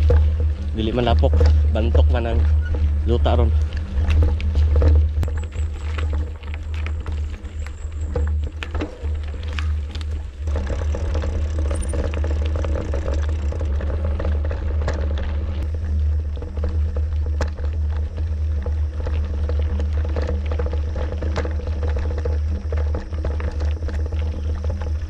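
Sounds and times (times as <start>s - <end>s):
bike rattling: 0.0s - 25.0s
tyres crunching over gravel: 0.0s - 25.0s.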